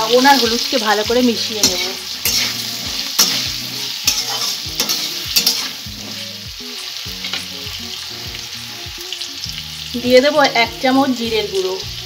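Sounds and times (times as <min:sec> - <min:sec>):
potatoes sizzling in oil: 0:00.0 - 0:12.0
spatula scraping metal pan: 0:00.4 - 0:06.4.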